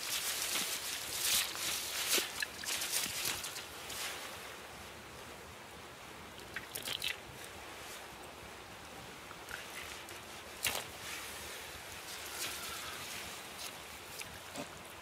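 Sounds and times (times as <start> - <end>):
rustling in damp leaf litter: 0.0 - 5.2, 7.2 - 8.4, 9.5 - 15.0.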